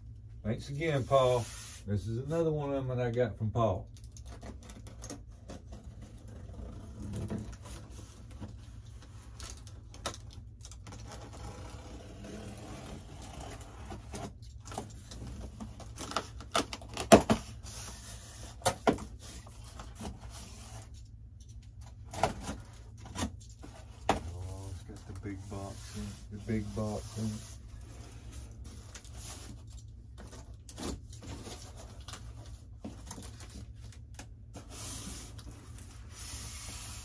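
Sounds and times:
steady low hum: 0:00.0 - 0:37.0
cardboard scraping and rustling: 0:22.1 - 0:33.8.

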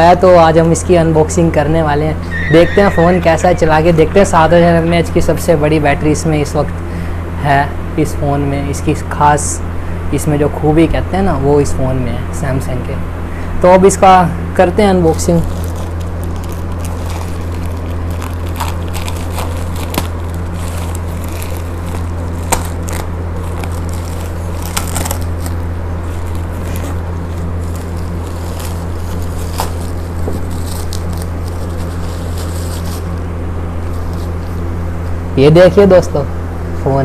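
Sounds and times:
steady low hum: 0:00.0 - 0:37.0
packaging crackling and scraping: 0:15.1 - 0:33.2.

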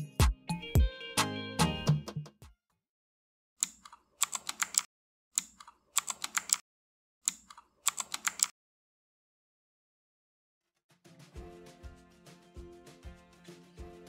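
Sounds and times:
computer keyboard typing: 0:04.2 - 0:04.9, 0:05.6 - 0:06.6, 0:07.3 - 0:08.5.

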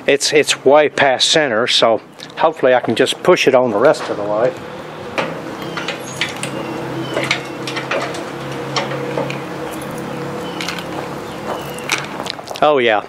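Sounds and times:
metal clicks and clinks: 0:07.2 - 0:11.0.

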